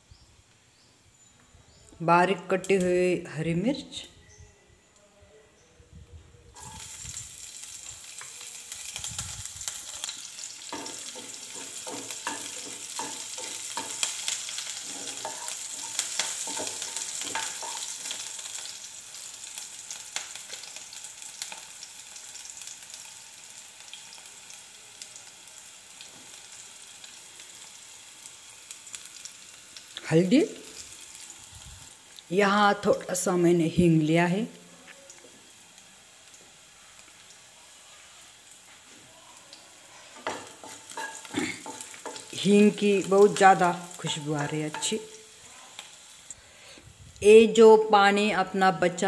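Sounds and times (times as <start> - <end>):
chillies sizzling in hot oil: 2.4 - 4.4, 6.5 - 49.0
wooden spatula scraping pan: 14.8 - 17.9.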